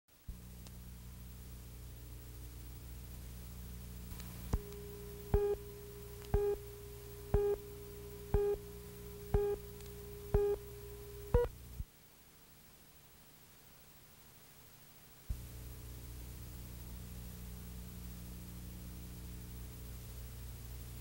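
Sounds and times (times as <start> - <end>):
faint steady tone: 0.2 - 21.0
low soundtrack hum: 0.3 - 11.8
countdown beeps with clicks: 4.6 - 5.6, 6.3 - 6.6, 7.3 - 7.6, 8.3 - 8.6, 9.3 - 9.6, 10.3 - 11.5.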